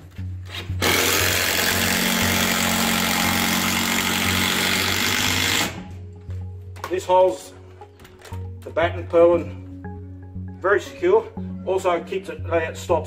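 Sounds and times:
cordless drill driving screw: 0.5 - 5.8.

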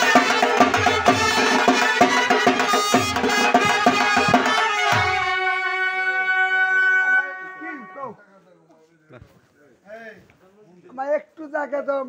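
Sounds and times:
barrel drums fast beat: 0.0 - 5.4
reedy wind instrument melody: 0.0 - 8.2.

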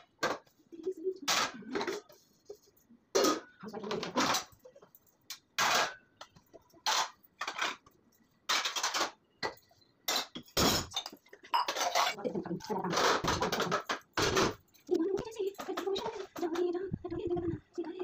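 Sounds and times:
steel dishes clanking: 8.5 - 12.2.

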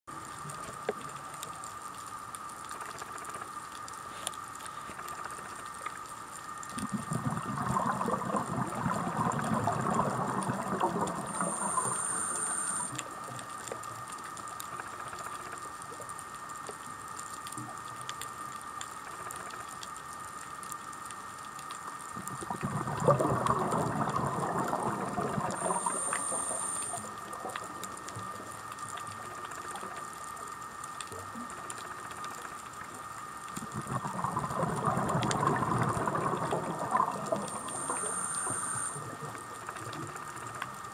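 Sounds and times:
underwater bubbling breaths: 6.8 - 13.0, 22.2 - 27.5, 33.6 - 39.4.

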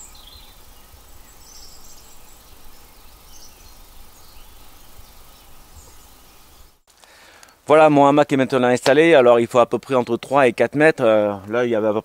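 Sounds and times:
faint bird chirps: 0.0 - 6.9.

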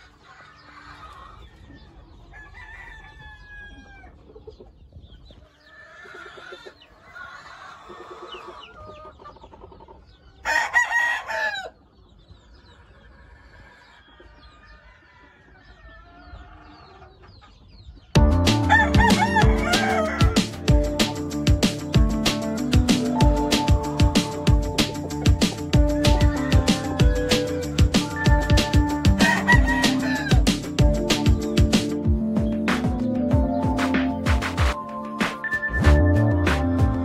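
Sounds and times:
birds calling: 0.0 - 34.8
rooster crowing: 2.3 - 4.1, 10.4 - 11.8, 14.9 - 16.3, 18.6 - 20.5, 25.9 - 27.6, 28.2 - 30.4
music: 18.2 - 37.0.

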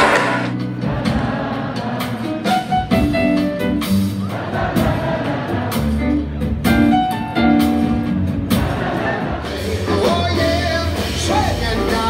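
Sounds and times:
drum and cymbal hits: 0.0 - 12.0.

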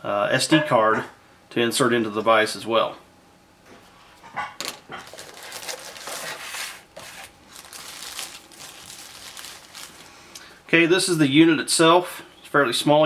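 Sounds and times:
plastic wrapping crinkling: 5.0 - 10.5.

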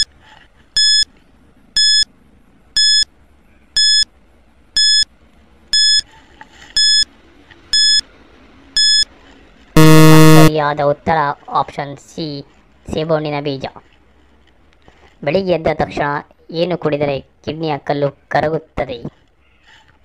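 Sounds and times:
short high electronic beeps: 1.8 - 2.0, 2.8 - 3.0, 3.8 - 4.0, 4.8 - 5.0, 5.8 - 6.0, 6.8 - 7.0, 7.8 - 8.0, 8.8 - 9.0, 9.8 - 10.5.

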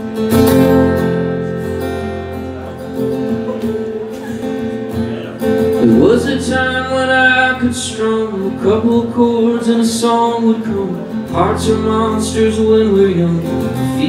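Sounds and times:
acoustic guitar strumming: 0.0 - 14.0
man singing: 5.6 - 14.0.

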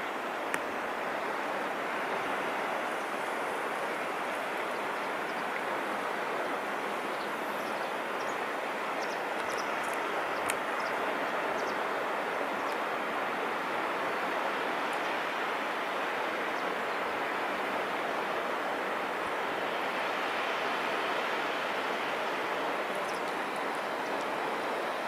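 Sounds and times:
sea washing at shore: 0.0 - 25.0
faint high ticks: 9.4 - 10.6.

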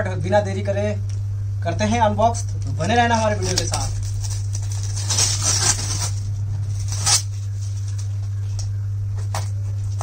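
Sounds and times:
steady low hum: 0.0 - 10.0
fingernails scratching packing tape: 3.5 - 7.3.

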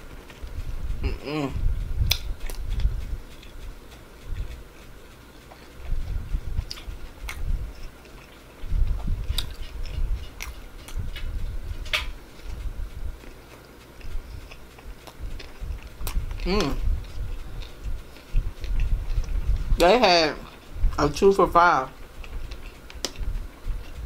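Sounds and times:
person chewing food: 0.0 - 20.7, 22.0 - 24.0.

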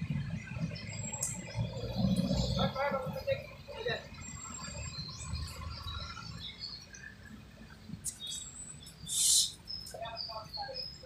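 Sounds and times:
birds chirping: 0.0 - 11.0
short loud hiss: 9.1 - 9.6.

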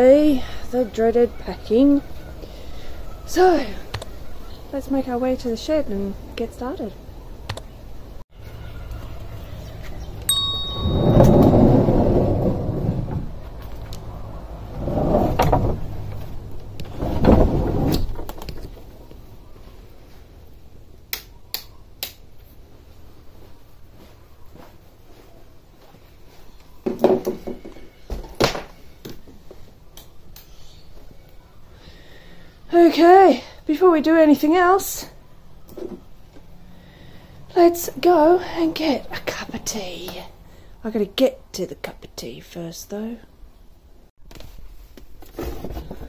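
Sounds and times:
short bright chime: 10.3 - 11.9
wooden door opening rumble: 11.1 - 13.6, 14.6 - 18.8.

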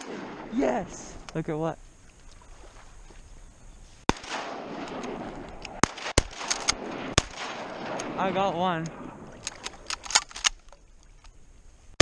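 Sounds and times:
shotgun shots: 0.0 - 0.8, 4.1 - 10.6.

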